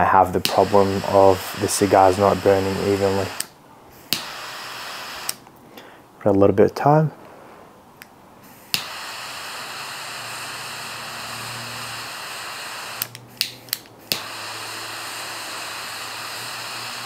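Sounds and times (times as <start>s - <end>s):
torch lighter flame hissing: 0.4s - 5.5s, 8.4s - 17.0s
lighter igniter clicks: 4.1s - 5.4s, 8.7s - 14.4s.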